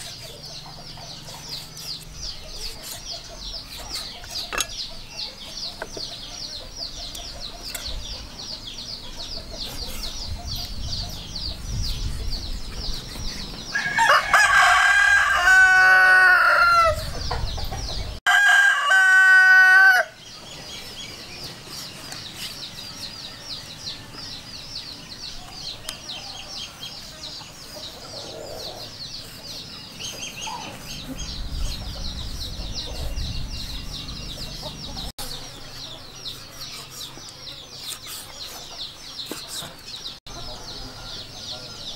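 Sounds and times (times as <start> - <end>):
rooster crowing: 13.7 - 17.1, 18.3 - 20.2.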